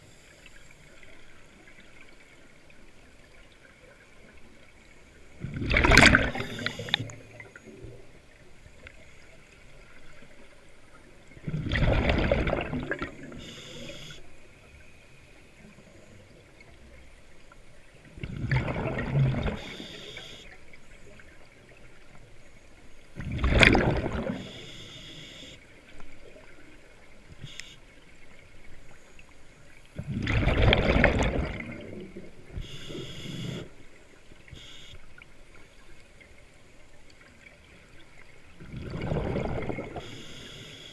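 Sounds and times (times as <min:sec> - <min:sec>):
exhaled bubble bursts: 0:05.4 - 0:07.5, 0:11.4 - 0:13.5, 0:18.2 - 0:19.8, 0:23.2 - 0:24.5, 0:30.0 - 0:32.8, 0:38.6 - 0:40.2.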